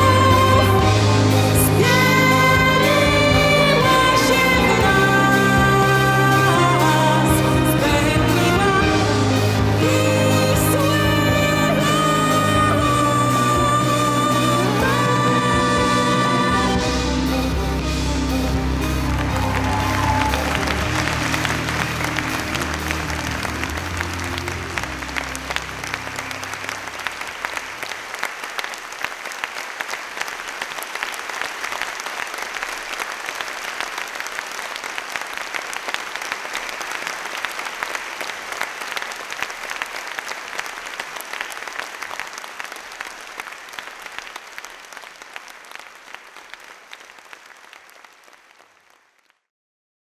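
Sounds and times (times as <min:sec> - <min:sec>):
closing music: 0:00.0 - 0:27.9
audience applauding: 0:18.3 - 0:49.5.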